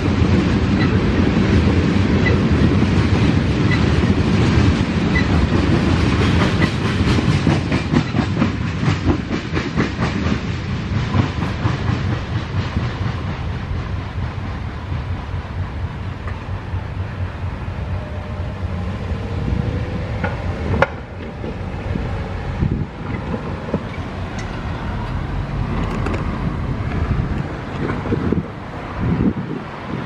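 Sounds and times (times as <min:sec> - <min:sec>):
wind buffeting microphone: 0:00.0 - 0:30.0
steady low rumble: 0:12.3 - 0:30.0
cars driving over railroad crossing: 0:14.8 - 0:30.0.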